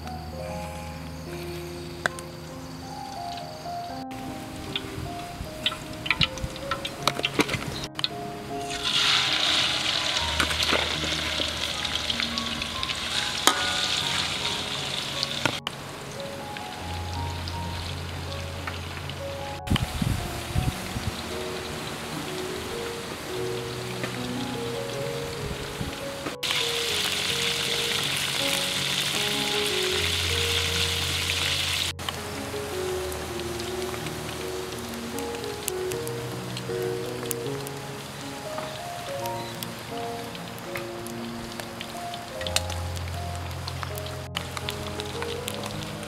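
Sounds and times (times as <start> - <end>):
oil sizzling in a wok: 8.6 - 15.6, 26.4 - 40.4.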